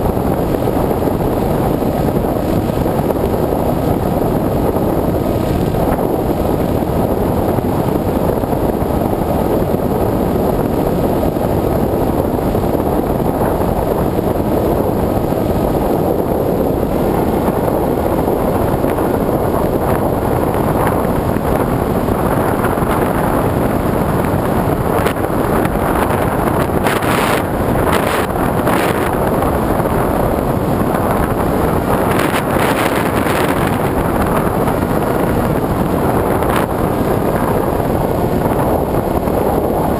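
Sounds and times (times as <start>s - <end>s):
small aircraft engine drone: 0.0s - 39.9s
wind rush on microphone: 0.0s - 39.9s.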